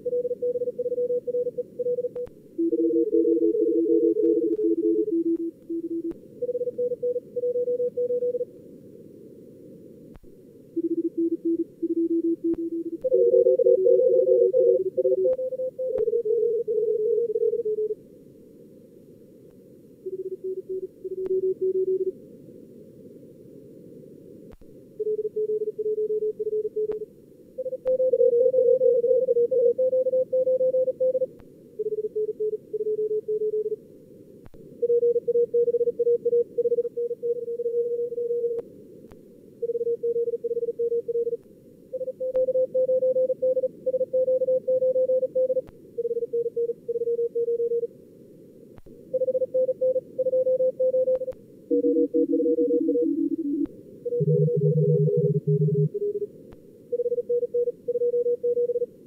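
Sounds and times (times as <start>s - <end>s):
morse code tones: 49.2s - 56.3s.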